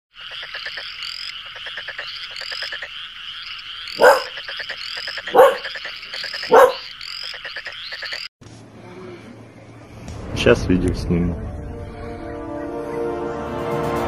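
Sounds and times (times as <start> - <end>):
rapid croaking pulses: 0.1 - 8.3
loud bark-like animal calls: 0.2 - 8.2.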